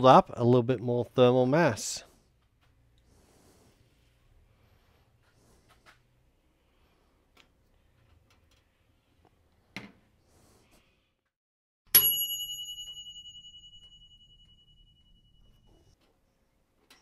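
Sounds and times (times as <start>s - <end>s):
oven timer bell ringing: 11.9s - 16.0s.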